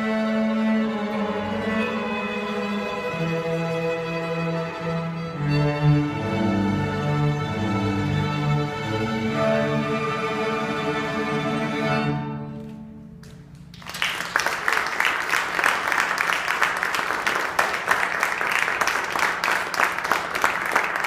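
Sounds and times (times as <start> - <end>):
audience applause: 13.7 - 21.0.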